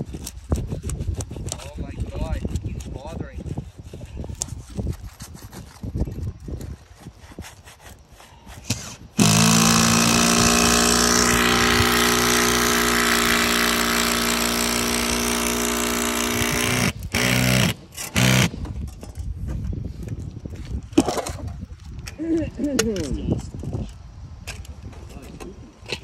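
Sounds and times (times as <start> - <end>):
power drill drilling into roof: 8.7 - 18.5.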